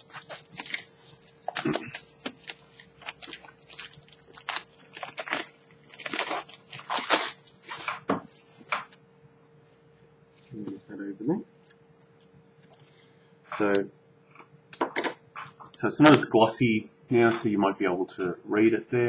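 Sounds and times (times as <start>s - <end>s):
plastic wrap crinkling: 0.0s - 8.8s.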